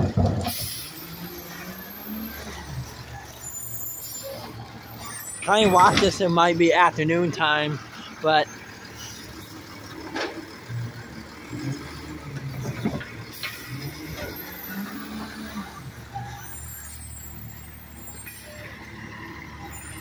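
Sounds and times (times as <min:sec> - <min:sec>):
garbage truck engine running: 0:00.0 - 0:20.0
trash cart clanking: 0:00.0 - 0:20.0
air brakes hissing: 0:00.4 - 0:01.3.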